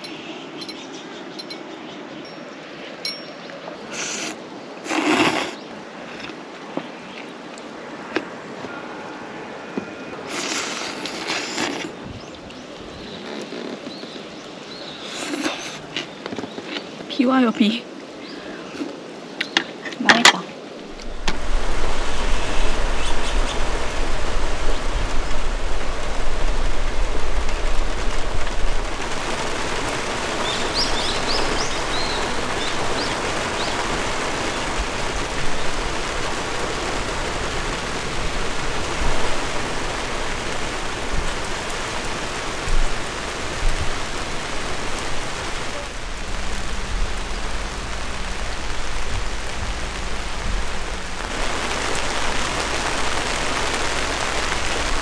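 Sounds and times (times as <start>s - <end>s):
bird chirps: 0.0s - 4.3s
rain falling on trees: 0.0s - 55.0s
low rumble: 46.0s - 52.2s.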